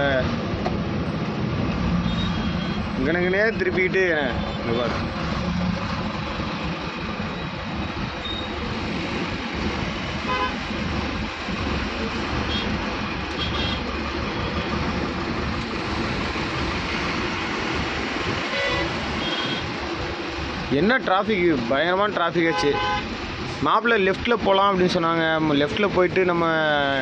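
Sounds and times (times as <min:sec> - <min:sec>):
engine and traffic rumble: 0:00.0 - 0:27.0
vehicle horn toots: 0:02.0 - 0:02.8, 0:10.3 - 0:10.6, 0:13.4 - 0:13.8, 0:18.5 - 0:19.7, 0:22.5 - 0:23.0.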